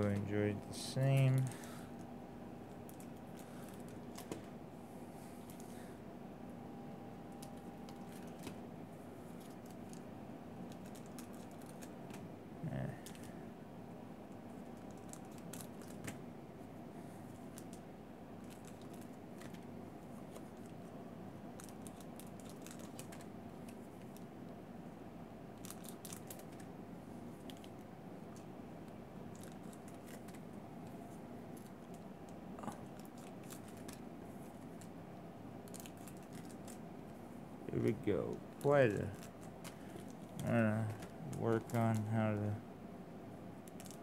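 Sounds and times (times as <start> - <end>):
low room hum: 0.0 - 44.0
foil wrappers crinkling: 35.6 - 36.8.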